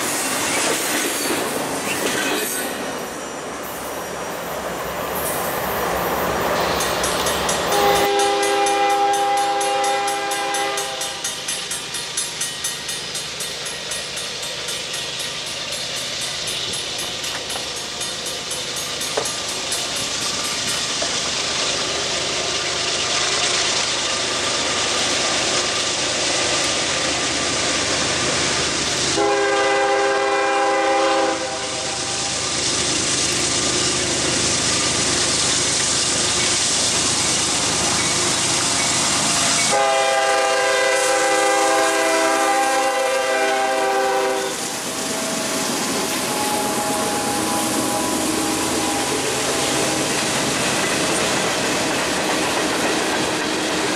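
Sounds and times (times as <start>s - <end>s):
freight train running: 0.0s - 53.9s
train chord horn blasts: 7.7s - 11.4s, 29.1s - 32.4s, 39.6s - 50.1s.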